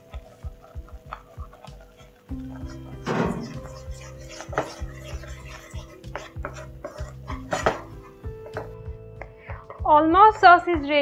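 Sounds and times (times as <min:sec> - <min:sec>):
spatula scraping frying pan: 0:00.0 - 0:08.8.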